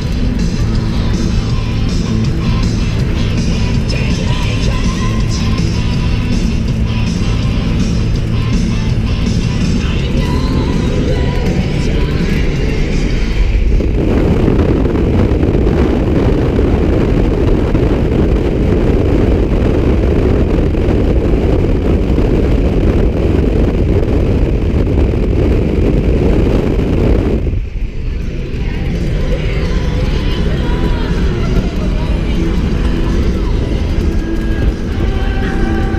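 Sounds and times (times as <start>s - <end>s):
car engine and road noise: 0.0s - 35.9s
wind rushing over microphone: 0.0s - 35.9s.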